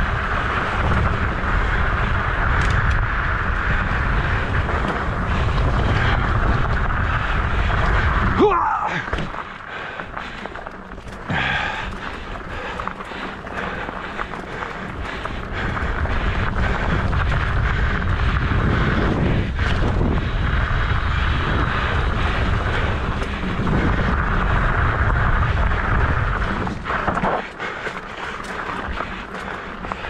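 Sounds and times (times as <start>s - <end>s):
bike rattling: 0.0s - 30.0s
tyres rolling over gravel: 0.0s - 30.0s
wind rumbling over microphone: 0.0s - 30.0s.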